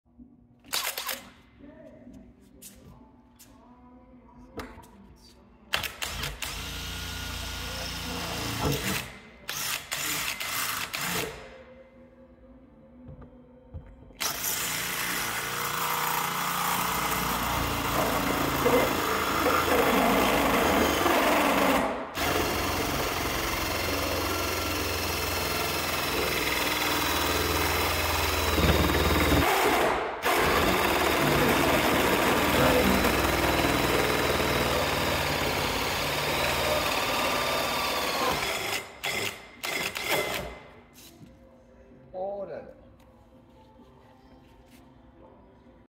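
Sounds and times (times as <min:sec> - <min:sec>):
drill hole saw cutting sheet metal: 0:14.3 - 0:40.5.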